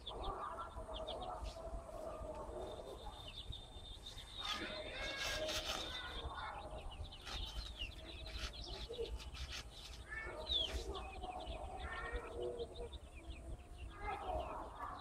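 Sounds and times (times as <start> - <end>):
chicks peeping: 0.0 - 15.0
hen clucking: 4.2 - 15.0.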